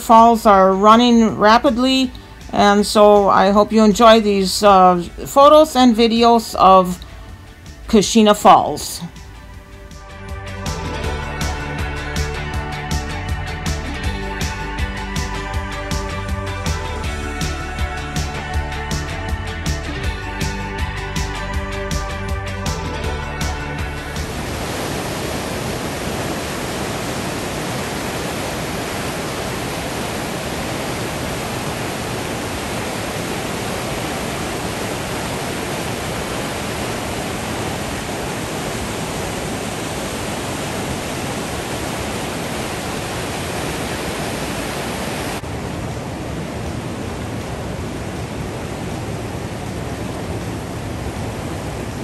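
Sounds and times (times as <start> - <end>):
whitewater rapids rushing: 24.2 - 52.0.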